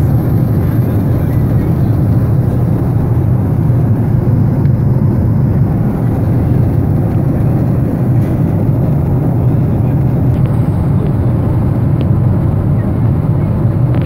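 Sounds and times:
airliner cabin rumble: 0:00.0 - 0:14.0.

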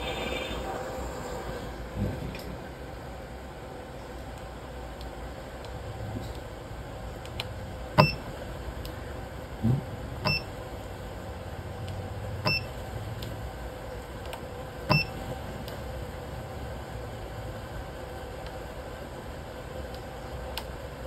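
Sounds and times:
transformer electrical hum: 0:00.0 - 0:21.0
short high electronic beeps: 0:08.0 - 0:08.2, 0:10.3 - 0:10.5, 0:12.5 - 0:12.7.

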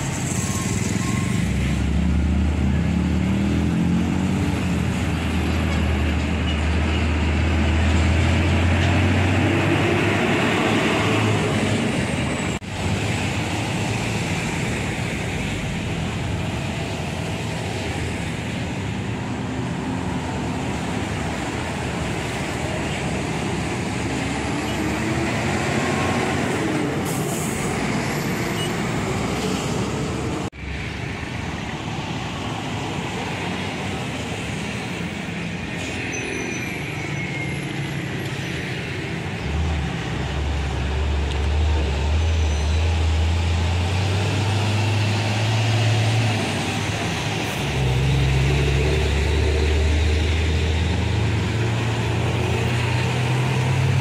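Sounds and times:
heavy road traffic: 0:00.0 - 0:54.0.

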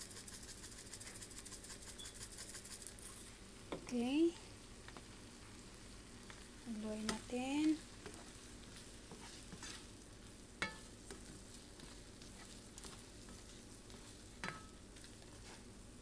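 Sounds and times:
shrimp sizzling in a pan: 0:04.0 - 0:16.0.

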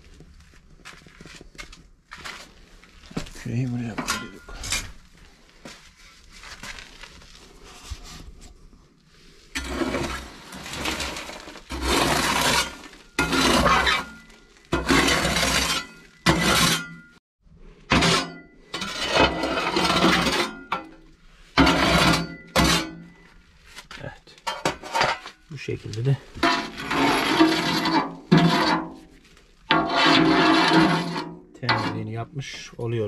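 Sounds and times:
metal shovel scraping ash: 0:09.5 - 0:17.2, 0:17.8 - 0:32.2.

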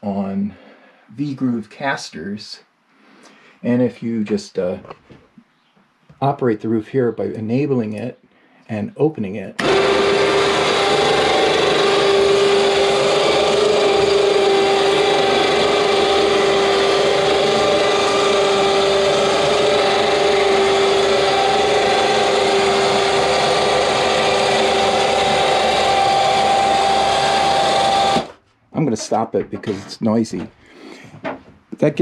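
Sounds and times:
winch motor droning with whine: 0:09.6 - 0:28.3.

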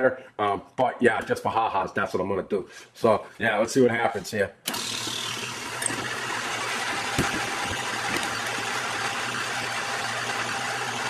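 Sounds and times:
metal lathe running: 0:04.7 - 0:11.0.

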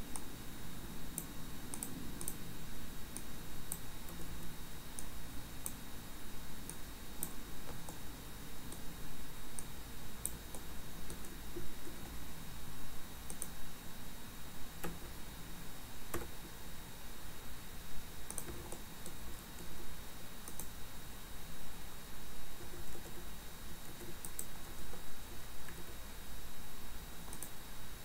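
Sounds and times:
steady background hiss: 0:00.0 - 0:28.0
mouse and keyboard clicks: 0:01.2 - 0:02.4, 0:13.3 - 0:13.6, 0:18.3 - 0:19.7, 0:20.4 - 0:20.7, 0:23.9 - 0:24.6, 0:27.2 - 0:27.6.

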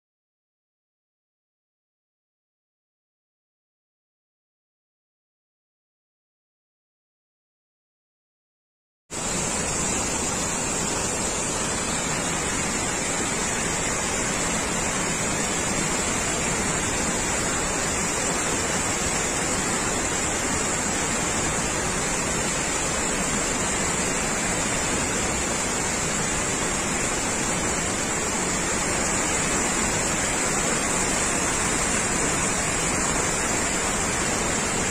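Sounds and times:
waterfall rushing: 0:09.2 - 0:34.9.

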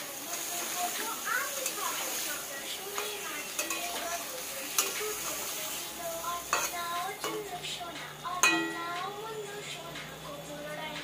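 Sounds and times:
vegetables sizzling in a pan: 0:00.0 - 0:11.0
spatula striking a pan: 0:02.9 - 0:05.1, 0:06.5 - 0:07.5, 0:08.4 - 0:09.0.

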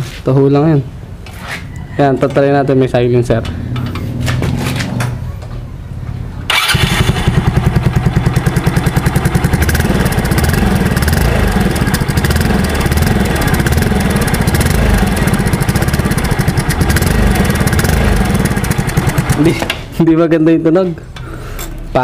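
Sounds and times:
scooter engine starting and running: 0:06.5 - 0:20.0.

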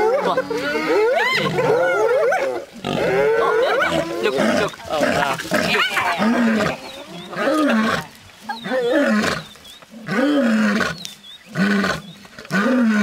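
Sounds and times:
lioness growling and roaring: 0:00.0 - 0:13.0
faint birdsong chirps: 0:05.9 - 0:12.6.

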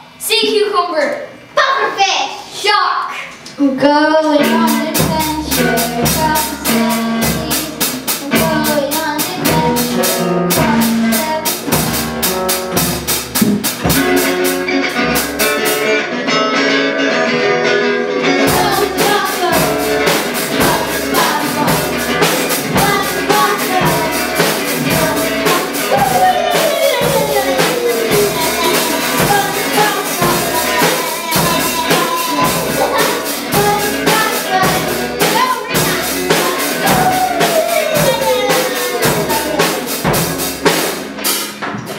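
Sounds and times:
girl singing lead: 0:02.6 - 0:13.1, 0:17.1 - 0:40.8
drum kit beat: 0:04.3 - 0:16.3, 0:18.2 - 0:41.9
strummed acoustic guitars: 0:04.3 - 0:41.9
electric guitar: 0:09.3 - 0:41.9.

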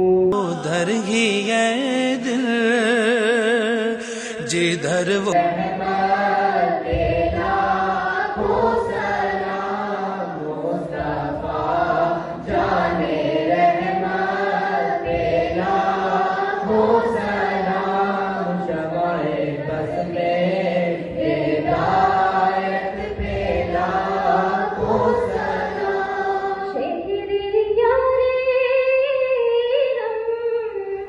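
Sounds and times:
children singing in unison: 0:05.3 - 0:26.8.

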